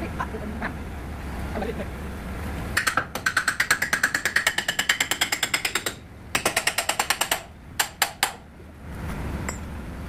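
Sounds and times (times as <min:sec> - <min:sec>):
hammer striking steel pin: 0:02.8 - 0:08.4.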